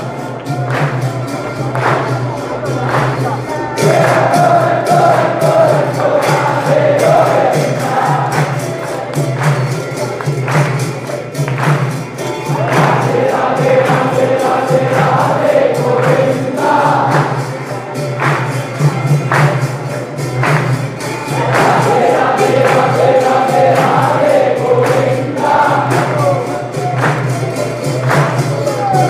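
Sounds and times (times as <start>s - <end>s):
jingling hand percussion: 0.0s - 29.0s
group singing devotional song: 0.7s - 9.7s, 12.2s - 18.6s, 21.2s - 29.0s.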